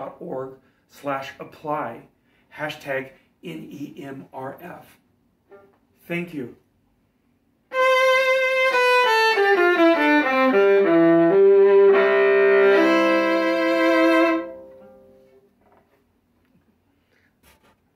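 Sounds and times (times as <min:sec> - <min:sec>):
bowed violin: 0:07.7 - 0:15.2.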